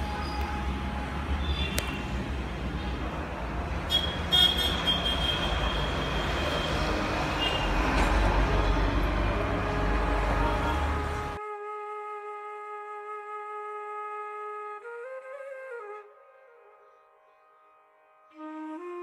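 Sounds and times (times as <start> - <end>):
road traffic rumble: 0.0 - 11.4
vehicle horn tooting: 3.9 - 7.8.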